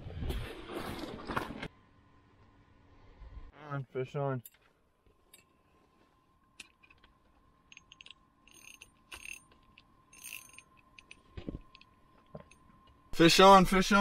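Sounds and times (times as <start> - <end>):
fishing reel clicks: 10.2 - 10.7.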